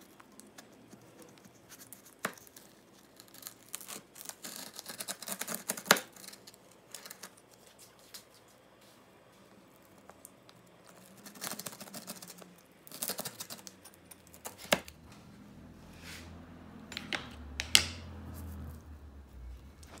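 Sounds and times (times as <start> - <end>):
pizza cutter crackling through crust: 0.0 - 8.3, 9.8 - 15.1.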